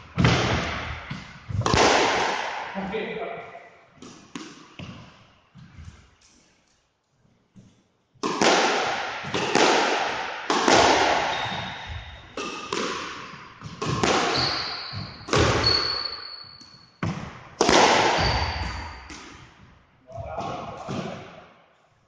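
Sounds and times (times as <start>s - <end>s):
squash ball cracks: 1.6s - 2.7s, 8.2s - 11.3s, 12.4s - 14.4s, 17.0s - 18.2s
sneakers squeaking on wooden floor: 11.0s - 17.3s, 18.1s - 19.2s.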